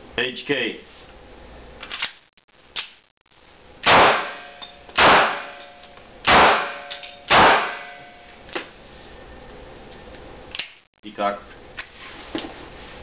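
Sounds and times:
pistol shots: 3.8 - 8.0.

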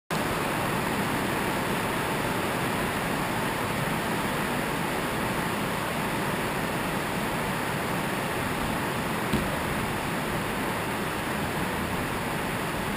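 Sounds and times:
steady rushing room noise: 5.8 - 12.9.

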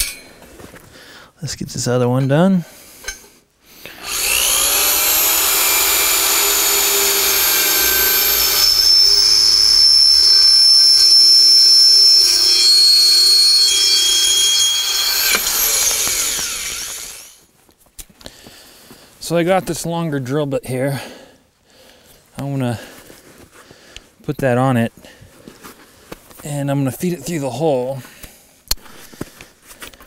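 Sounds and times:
electric drill boring through metal: 3.8 - 17.4.

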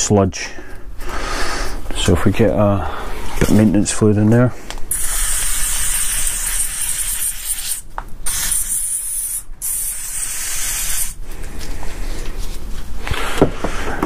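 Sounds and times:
aerosol spray can hissing: 4.9 - 11.2.

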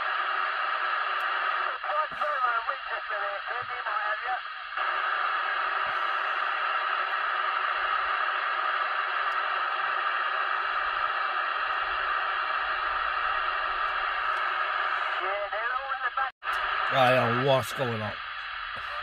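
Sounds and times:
radio static hiss: 0.0 - 19.0.

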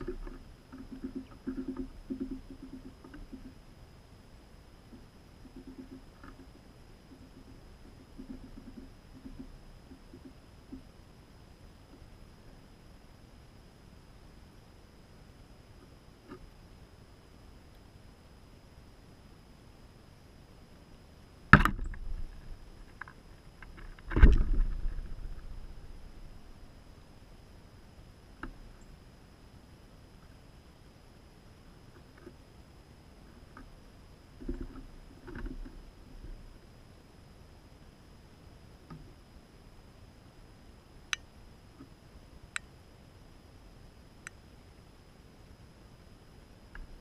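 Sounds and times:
faint steady hiss: 0.0 - 47.0
faint clicks: 28.4 - 28.9, 41.1 - 42.7.

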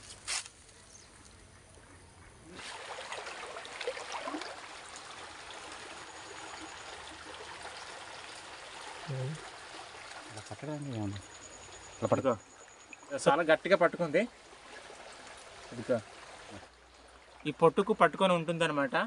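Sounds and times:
stream water splashing: 2.5 - 19.0.

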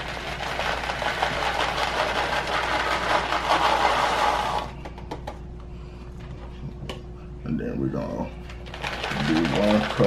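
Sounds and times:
kibble pouring into metal bowl: 8.6 - 10.0.

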